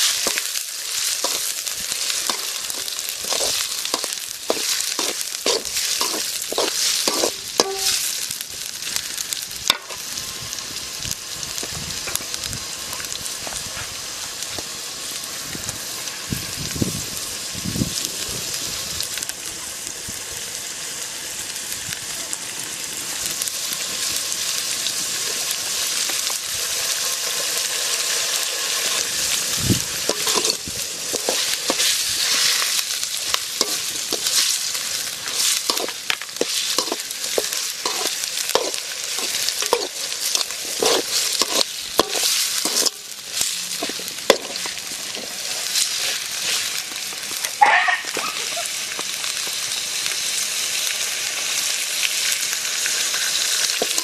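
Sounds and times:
liver sizzling in a wok: 0.0s - 54.0s
metal skimmer scraping a pan: 2.2s - 8.0s, 30.0s - 32.6s, 35.2s - 46.7s.

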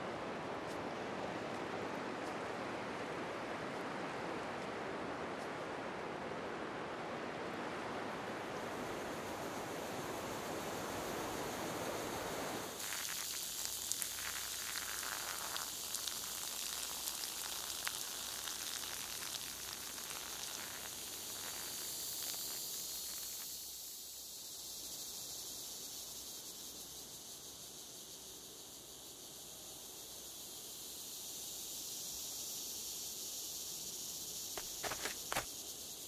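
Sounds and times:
surf washing on a beach: 0.0s - 15.4s
steady high hiss: 0.0s - 36.0s
leaves and twigs crackling underfoot: 34.6s - 35.5s.

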